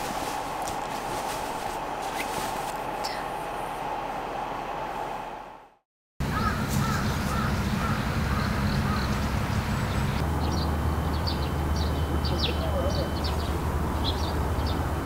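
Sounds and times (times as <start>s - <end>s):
birds calling: 6.2s - 15.0s.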